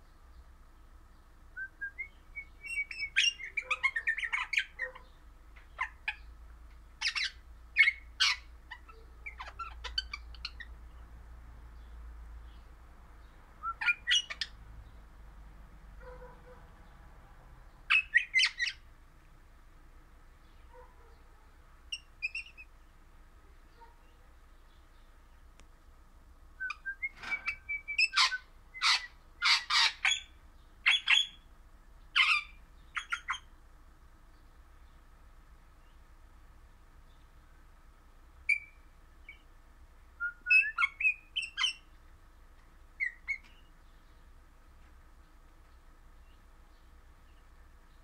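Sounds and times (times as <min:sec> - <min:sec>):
parakeet chirping and whistling: 0:02.4 - 0:04.8, 0:07.0 - 0:08.4, 0:13.6 - 0:14.5, 0:17.9 - 0:18.8, 0:26.6 - 0:31.4, 0:38.5 - 0:38.8, 0:40.4 - 0:41.8.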